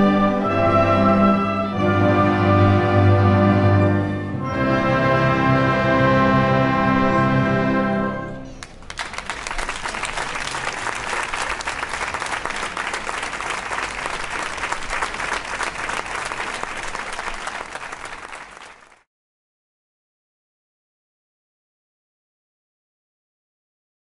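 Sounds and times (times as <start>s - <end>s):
wind band holding loud chord: 0.0s - 8.5s
audience applause: 8.6s - 19.1s.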